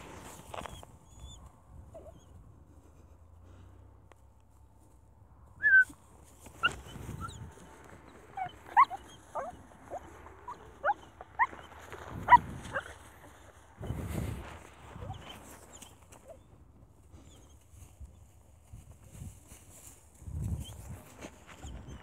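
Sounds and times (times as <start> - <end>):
rustling in dry grass: 0.0 - 22.0
puppy whimpering: 0.6 - 2.4, 5.6 - 5.9, 6.6 - 13.4, 14.9 - 16.4.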